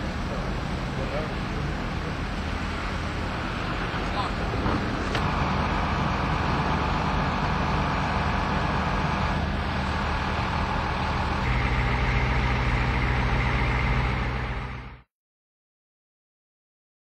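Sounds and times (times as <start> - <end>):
large vehicle engine idling: 0.0 - 15.1
low hum: 3.2 - 15.1.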